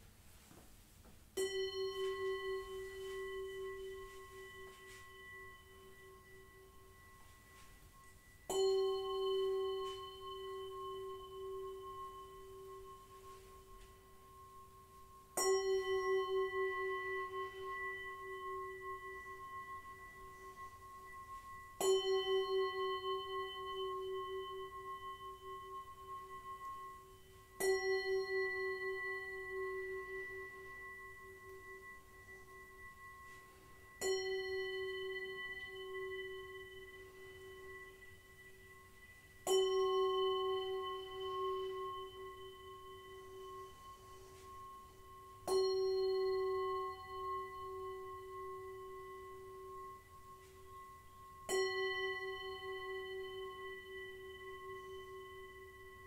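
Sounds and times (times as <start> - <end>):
singing bowl ringing: 1.3 - 56.0.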